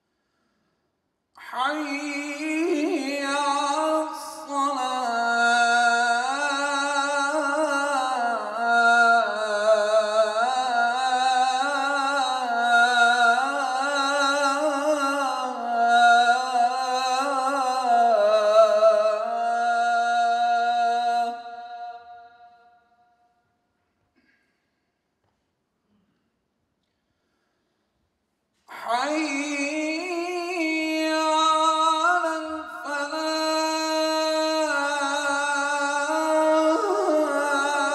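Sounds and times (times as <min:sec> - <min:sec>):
man chanting call to prayer: 0:01.4 - 0:22.4, 0:28.7 - 0:37.9.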